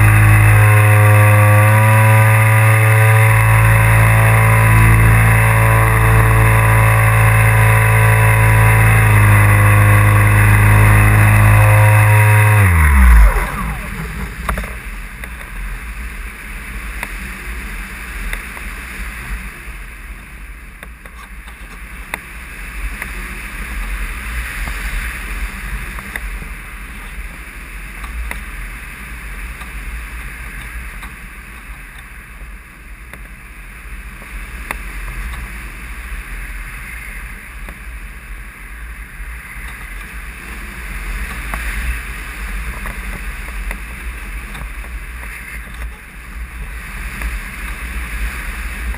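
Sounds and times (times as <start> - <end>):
wind rushing over model plane: 0.0 - 48.9.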